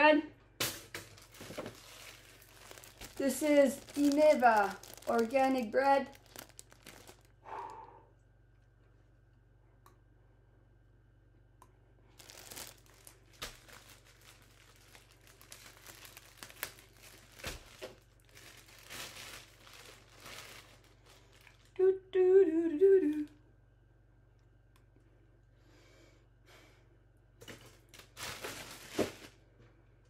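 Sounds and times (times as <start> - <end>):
plastic bag crinkling: 0.6 - 7.4, 12.1 - 21.8, 27.4 - 29.4.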